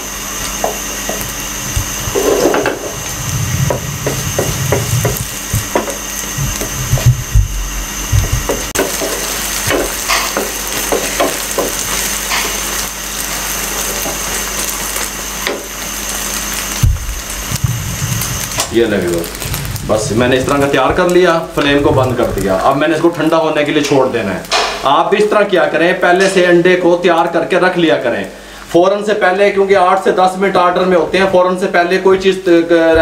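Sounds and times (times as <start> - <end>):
spatula scraping a frying pan: 2.0 - 6.7.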